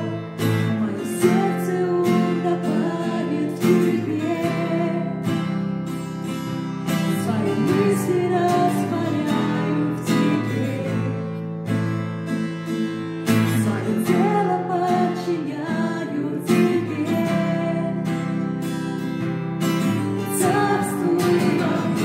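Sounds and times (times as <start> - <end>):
woman singing: 0.0 - 5.6, 6.9 - 11.6, 13.3 - 18.9, 19.8 - 22.0
acoustic guitar strumming: 0.0 - 22.0.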